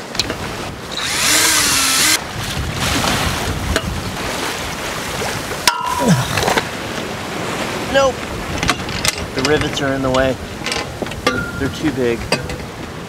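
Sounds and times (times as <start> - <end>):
wind: 0.0 - 13.0
sea wash: 0.3 - 9.5
cordless drill boring into metal: 0.9 - 2.2.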